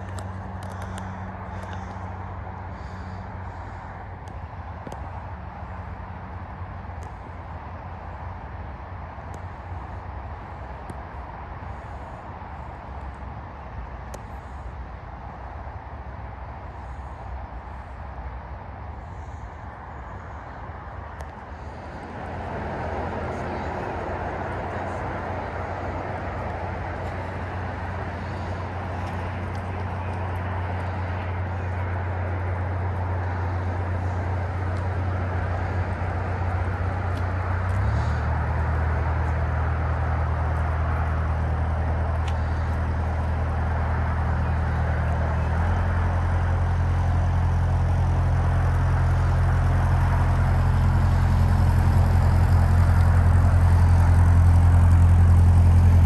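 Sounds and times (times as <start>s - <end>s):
boat diesel engine throbbing: 0.0s - 7.3s, 19.0s - 56.0s.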